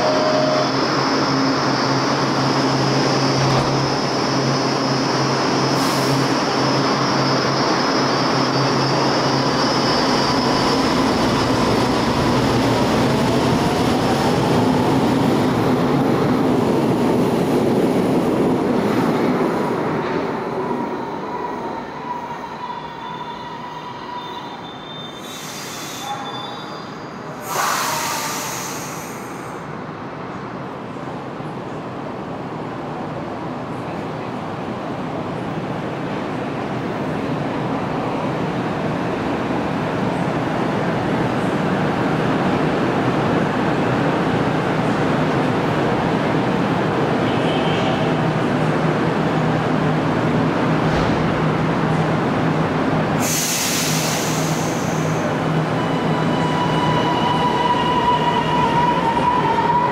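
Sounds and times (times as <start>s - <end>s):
wheels squealing on rails: 0.0s - 15.2s, 20.1s - 29.6s, 53.2s - 59.9s
metro train running noise: 0.0s - 59.9s
sudden loud rush of noise: 53.0s - 55.6s.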